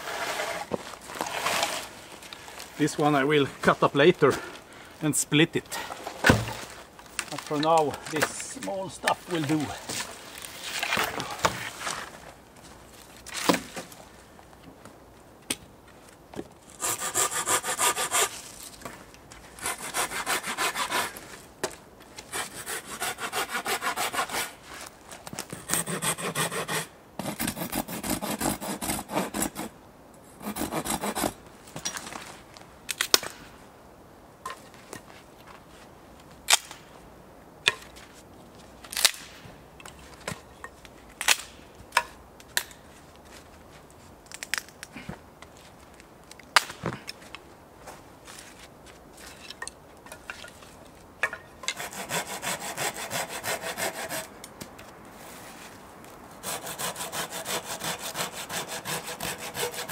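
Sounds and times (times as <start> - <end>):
saw rasping through wood: 16.8 - 18.4, 19.6 - 21.2, 22.3 - 24.6, 25.6 - 29.7, 30.4 - 31.4, 51.7 - 54.3, 56.4 - 59.9
wood snapping: 38.9 - 39.4.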